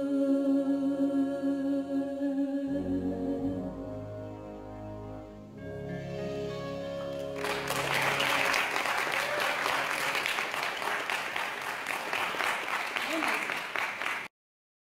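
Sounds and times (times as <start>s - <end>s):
held final chord of music: 2.7s - 9.1s
audience applauding: 7.1s - 14.3s.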